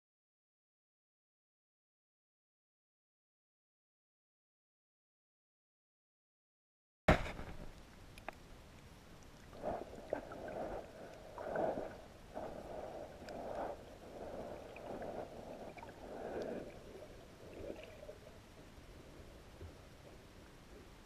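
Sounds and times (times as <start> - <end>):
underwater swishes of water: 7.5 - 21.0
faint clicks: 7.6 - 9.5.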